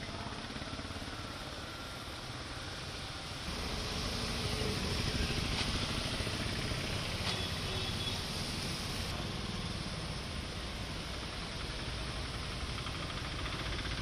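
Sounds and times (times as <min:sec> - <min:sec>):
scooter and car engines: 0:00.0 - 0:14.0
rain hissing: 0:01.0 - 0:13.8
water washing under tyres: 0:01.7 - 0:09.2.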